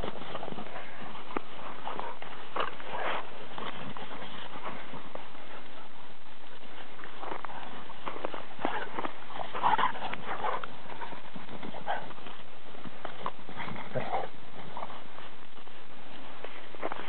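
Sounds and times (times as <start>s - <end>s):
dogs growling and yipping: 6.6s - 15.4s.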